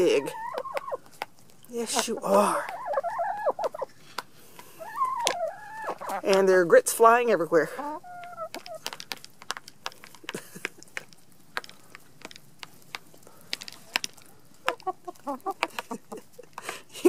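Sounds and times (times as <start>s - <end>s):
hen clucking: 0.0s - 9.2s, 14.6s - 16.6s
hens pecking at a plate: 0.0s - 17.0s.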